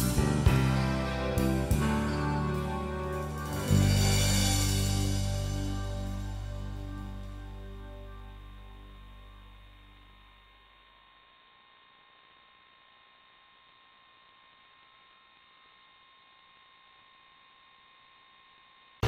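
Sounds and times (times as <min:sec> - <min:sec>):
background music: 0:00.0 - 0:09.6
faint electronic hum: 0:00.0 - 0:19.0.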